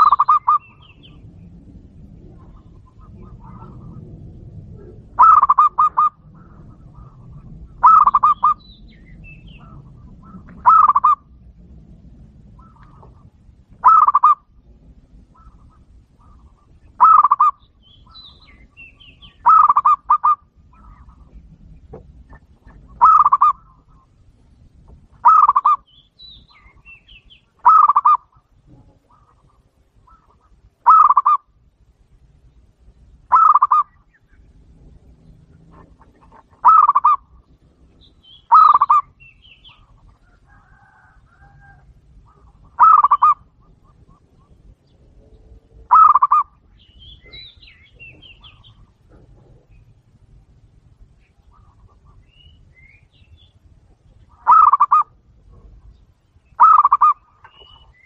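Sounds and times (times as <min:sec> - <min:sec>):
dove cooing: 0:00.0 - 0:11.5, 0:12.3 - 0:24.2, 0:25.1 - 0:31.5, 0:33.3 - 0:33.9, 0:34.9 - 0:46.6, 0:54.2 - 0:56.0, 0:56.6 - 0:58.0.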